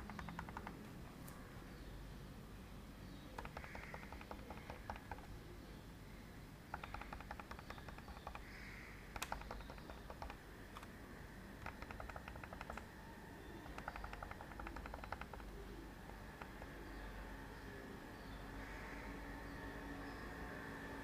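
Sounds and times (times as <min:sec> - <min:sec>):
rapid light clicks: 0:00.0 - 0:00.9, 0:03.3 - 0:05.4, 0:06.7 - 0:11.0, 0:11.6 - 0:17.0.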